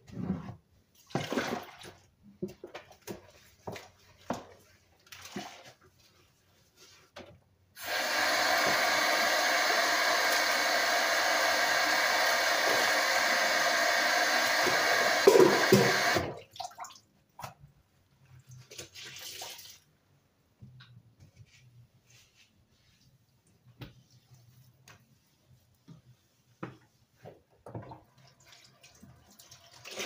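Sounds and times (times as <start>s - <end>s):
water pouring into sink: 7.8s - 17.0s, 18.8s - 19.9s, 28.1s - 30.0s.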